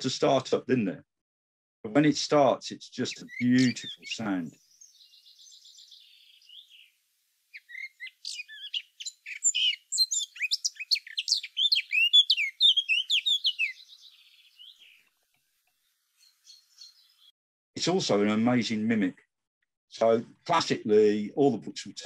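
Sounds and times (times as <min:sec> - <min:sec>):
bird warbling song: 0:03.0 - 0:17.3.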